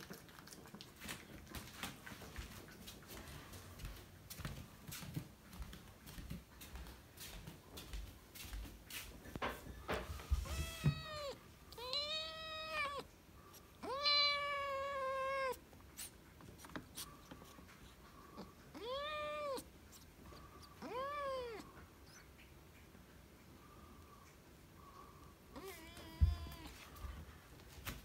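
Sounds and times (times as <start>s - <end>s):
kitten meowing: 10.4s - 13.1s, 13.8s - 15.6s, 18.7s - 20.0s, 20.8s - 22.2s.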